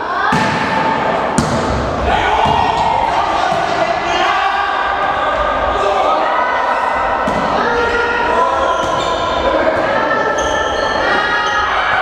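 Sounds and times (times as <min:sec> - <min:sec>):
volleyball slaps echoing: 0:00.3 - 0:04.1, 0:07.2 - 0:07.6.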